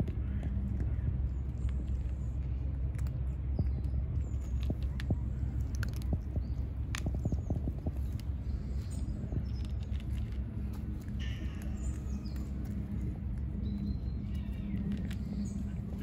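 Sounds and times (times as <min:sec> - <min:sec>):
small birds chirping: 0:00.0 - 0:16.0
steady low rumble: 0:00.0 - 0:16.0.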